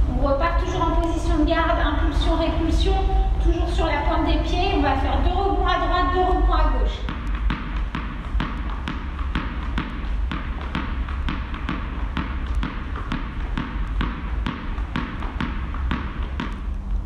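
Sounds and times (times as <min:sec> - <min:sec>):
low hum: 0:00.0 - 0:17.0
tennis ball bouncing on floor: 0:06.9 - 0:17.0.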